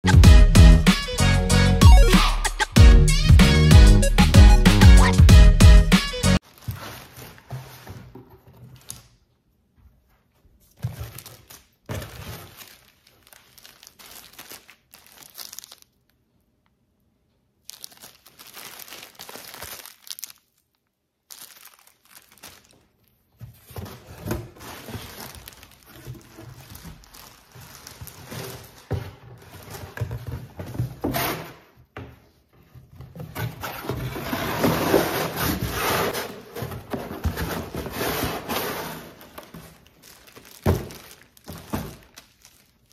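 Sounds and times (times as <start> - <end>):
plastic packaging crinkling: 6.4 - 7.5, 10.8 - 16.3, 17.6 - 30.8, 33.7 - 42.9.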